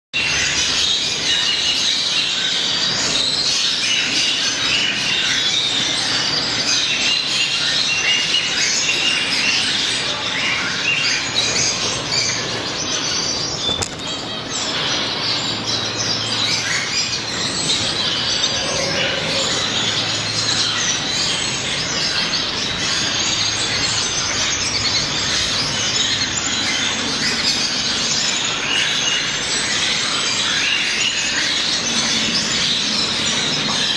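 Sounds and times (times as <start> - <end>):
finches chirping: 0.2 - 33.9.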